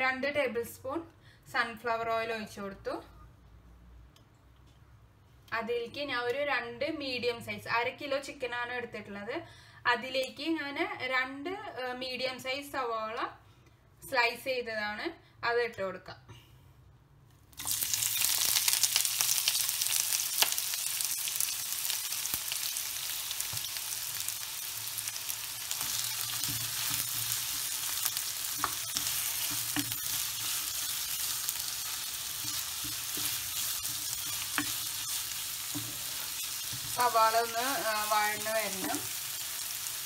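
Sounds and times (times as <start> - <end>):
onions sizzling in hot oil: 17.5 - 40.0
spatula tapping pan: 28.5 - 30.6, 32.3 - 37.0.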